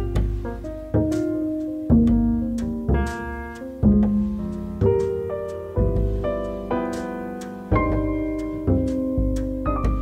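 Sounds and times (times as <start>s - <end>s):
instrumental music with chords: 0.0s - 10.0s
low bass line: 0.0s - 10.0s.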